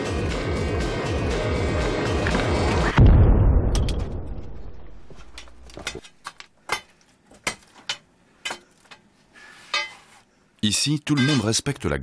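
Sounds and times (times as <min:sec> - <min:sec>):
underground blast bang: 0:02.9 - 0:05.1.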